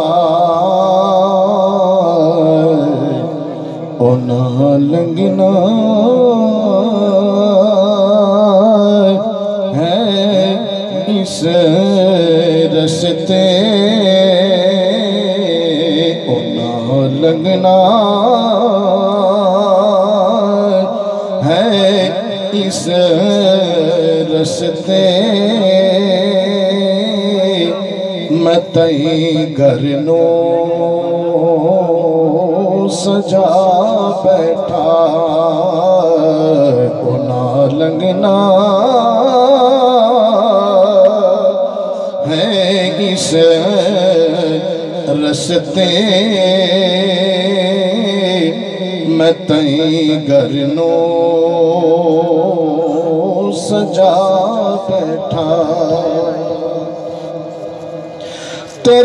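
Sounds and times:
man singing over a pa system: 0.0 - 59.0.

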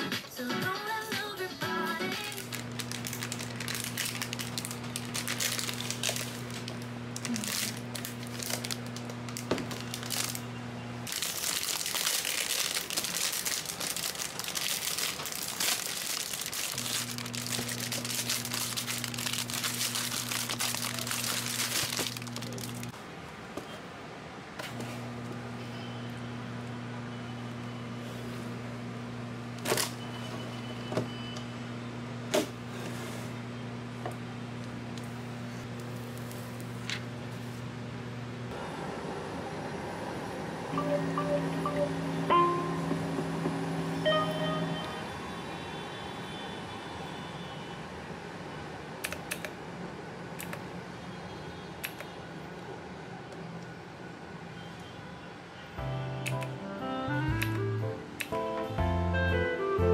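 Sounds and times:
plastic wrapping crinkling and tearing: 2.2 - 23.0.

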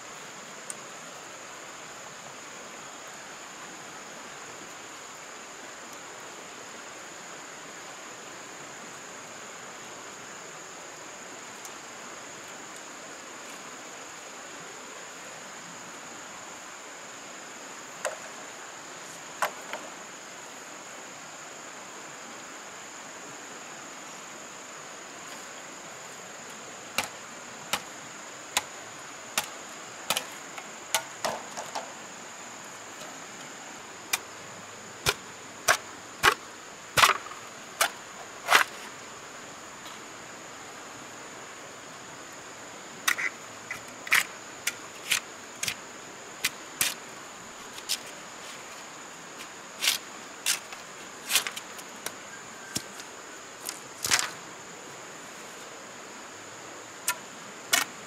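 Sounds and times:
steady hiss: 0.0 - 58.0
blade chopping wood: 27.0 - 27.9, 29.4 - 30.4, 35.0 - 36.4, 37.0 - 38.8, 57.1 - 58.0.

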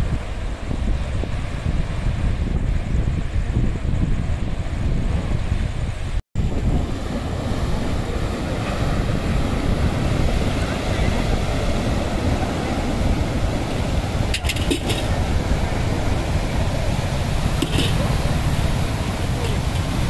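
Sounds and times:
wind buffeting microphone: 0.0 - 20.0
sea waves breaking on rocks: 6.4 - 20.0.

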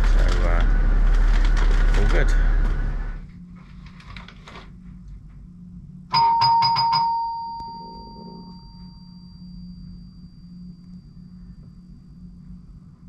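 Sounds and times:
doorbell chimes: 6.1 - 10.4.

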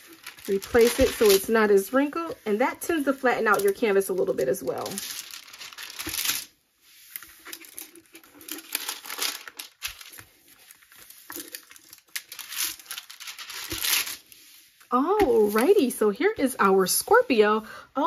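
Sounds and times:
plastic film crinkling: 0.0 - 15.9.

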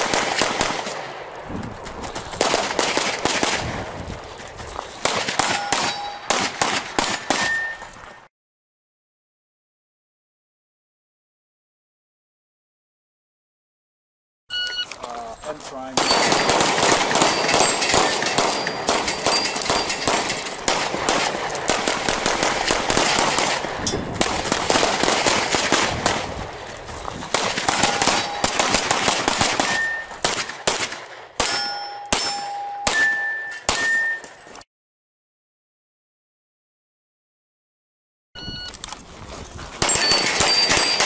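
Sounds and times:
rapid handgun fire: 0.0 - 1.4, 2.4 - 3.9, 5.0 - 7.6, 16.0 - 26.6, 27.2 - 32.3, 39.8 - 41.0
steel targets ringing: 5.4 - 6.3, 7.2 - 8.2, 15.8 - 21.5, 27.8 - 28.6, 29.7 - 30.2, 31.4 - 34.6, 39.8 - 41.0.

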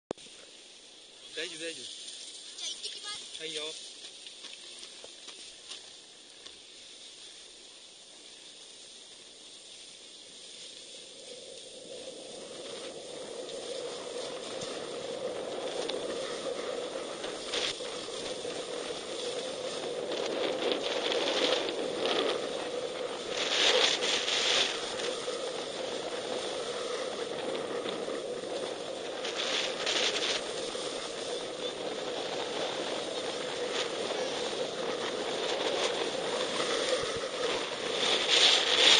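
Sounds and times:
skis scraping over snow: 0.2 - 38.9.

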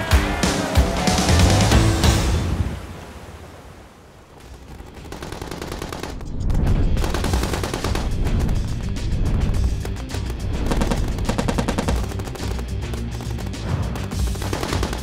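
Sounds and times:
music: 0.0 - 2.8, 5.8 - 15.0
rapid machine gun fire: 4.7 - 6.3, 7.0 - 8.6, 9.8 - 15.0.

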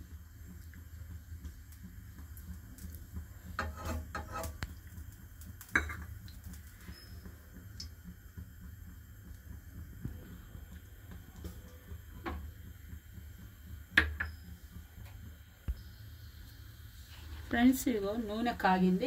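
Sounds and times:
steady low hum: 0.0 - 19.0
kitchenware clinking on a pan: 3.6 - 4.6, 5.8 - 6.1.

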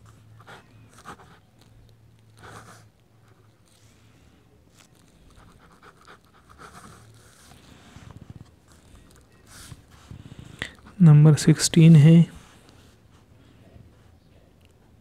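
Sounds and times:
pen scratching on paper: 2.4 - 2.9, 5.3 - 11.0.

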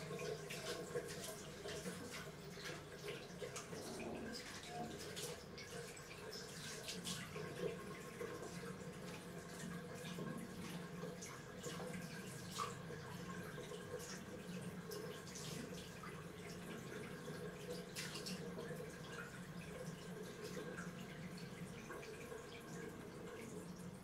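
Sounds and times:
splashes of hand washing: 0.0 - 24.0
tap running into washbasin: 0.0 - 24.0.

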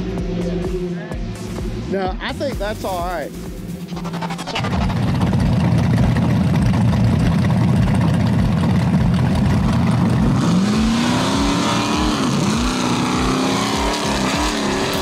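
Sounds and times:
buggy engine revving: 0.0 - 2.0, 3.8 - 15.0.

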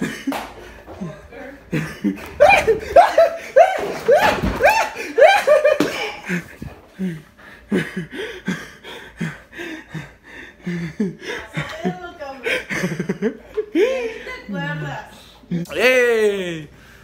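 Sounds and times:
person laughing hard: 1.7 - 9.4.

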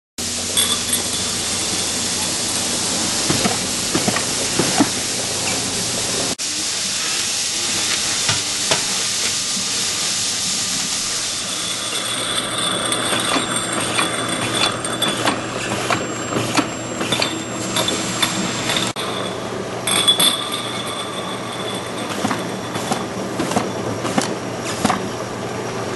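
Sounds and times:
labeling machine whirring: 0.2 - 25.2
jars clicking and knocking: 0.3 - 5.7.

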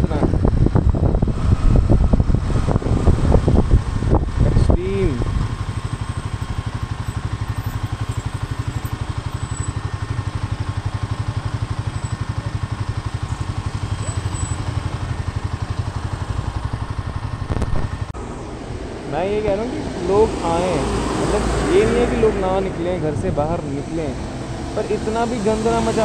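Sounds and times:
motorcycle engine idling: 0.3 - 20.8.

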